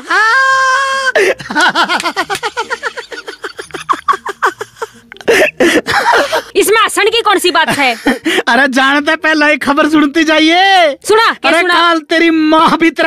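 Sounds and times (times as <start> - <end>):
person laughing: 0.0 - 6.6.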